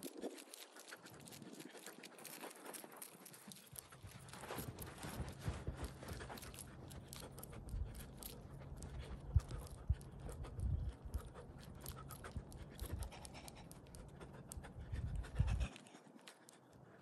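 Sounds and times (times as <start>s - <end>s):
wind rumbling on microphone: 8.9s - 11.4s, 14.6s - 15.8s.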